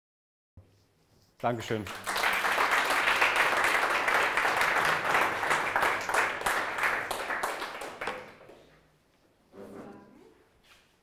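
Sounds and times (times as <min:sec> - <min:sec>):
audience applause: 0:01.9 - 0:08.6.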